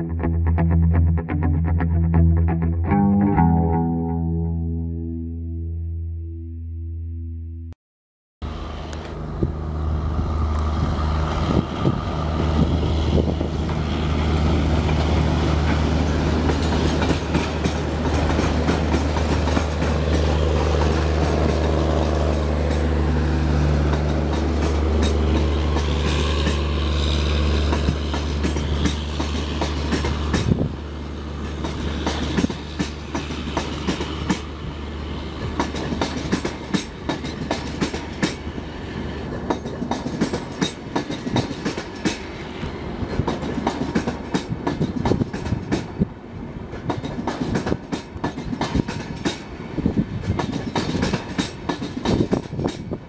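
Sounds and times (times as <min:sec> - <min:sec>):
locomotive engine drone: 0:08.4 - 0:45.0
wheels clicking on rail joints: 0:08.8 - 0:53.0
coach wheels clattering: 0:11.2 - 0:30.7, 0:35.4 - 0:38.5, 0:39.2 - 0:46.0, 0:50.2 - 0:53.0.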